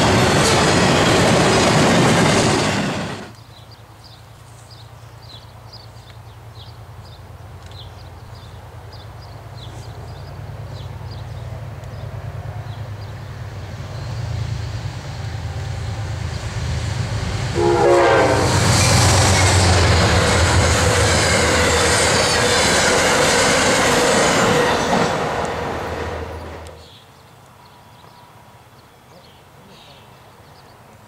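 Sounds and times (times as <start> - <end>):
diesel locomotive engine rumble: 0.0 - 3.4, 6.4 - 26.8
wheel and rail noise: 0.0 - 3.6, 5.9 - 28.2
train horn: 17.5 - 22.7.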